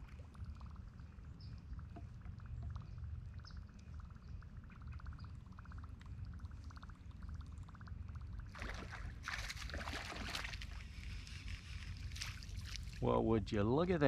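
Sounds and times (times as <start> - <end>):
fish splashing at water surface: 8.5 - 10.9.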